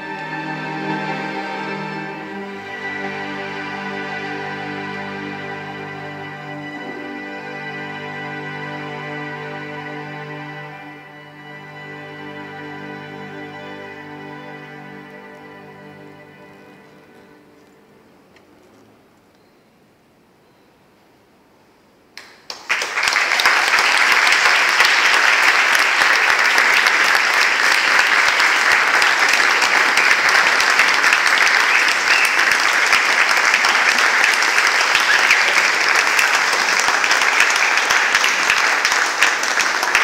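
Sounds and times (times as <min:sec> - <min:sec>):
audience applause: 0:22.5 - 0:40.0.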